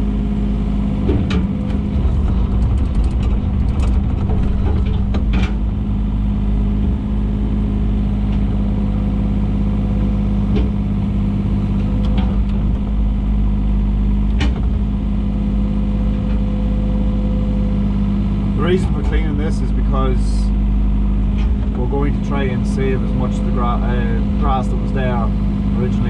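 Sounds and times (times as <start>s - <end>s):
excavator diesel engine running: 0.0s - 26.0s
machine knocks: 1.0s - 5.9s.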